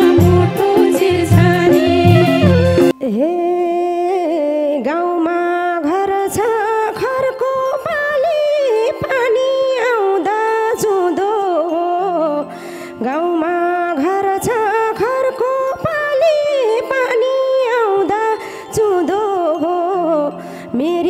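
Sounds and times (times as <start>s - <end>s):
drums: 0.0s - 2.9s
ornamented sliding melody: 0.0s - 3.4s
held accompanying tones: 0.0s - 3.5s.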